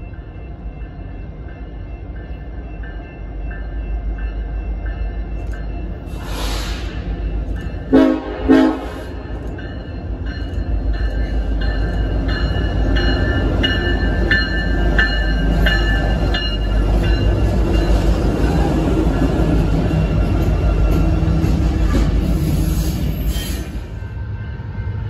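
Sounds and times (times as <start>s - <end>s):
locomotive bell ringing: 0.0s - 22.2s
rolling train wheels: 0.0s - 25.0s
train horn blasts: 7.9s - 9.4s.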